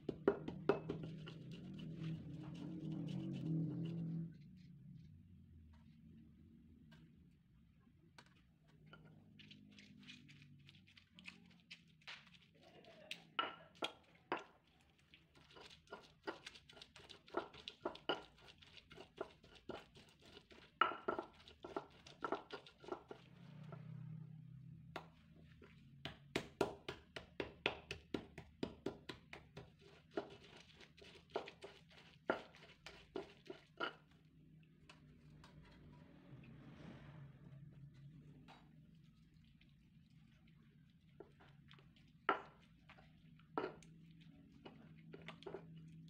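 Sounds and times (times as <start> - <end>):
stone pestle knocking in mortar: 0.0 - 1.3, 26.0 - 30.4.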